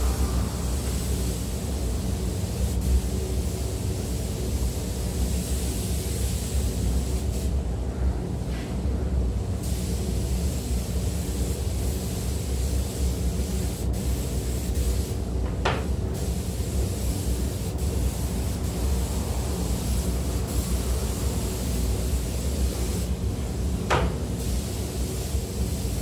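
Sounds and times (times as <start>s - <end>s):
low rumble: 0.0s - 2.5s
spray gun hissing: 0.0s - 7.6s, 9.6s - 15.2s, 15.8s - 26.0s.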